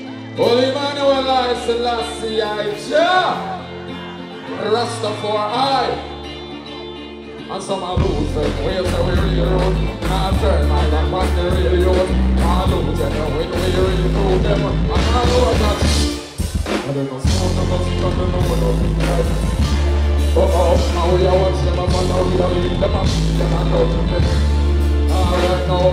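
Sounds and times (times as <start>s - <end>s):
band playing bass-driven rhythm: 0.0s - 25.9s
man singing into microphone: 7.4s - 16.2s, 16.8s - 19.5s, 20.3s - 25.9s.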